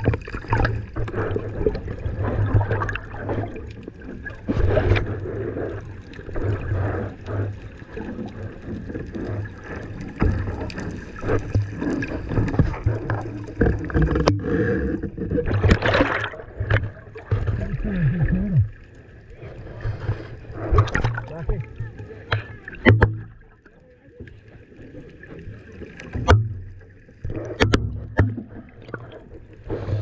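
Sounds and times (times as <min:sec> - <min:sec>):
rush of bubbles: 0:00.0 - 0:23.7, 0:27.1 - 0:30.0
underwater water sloshing and bubbling: 0:00.0 - 0:30.0
low underwater thumps: 0:09.8 - 0:18.8, 0:19.9 - 0:23.7, 0:26.1 - 0:29.4.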